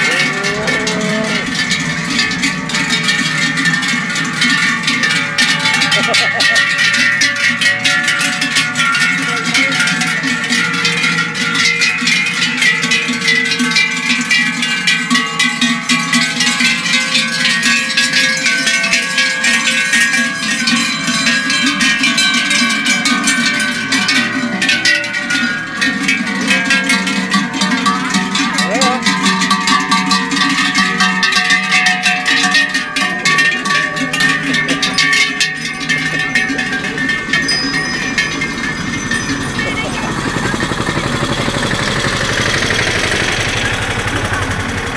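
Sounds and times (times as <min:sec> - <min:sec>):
cowbells clanging: 0:00.0 - 0:44.9.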